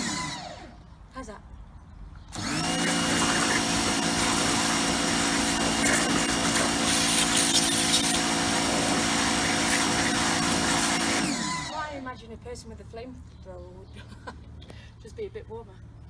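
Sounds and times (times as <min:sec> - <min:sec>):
pressure washer motor humming: 0:00.0 - 0:00.7, 0:02.3 - 0:11.9
water jet hissing on plastic: 0:02.6 - 0:11.4.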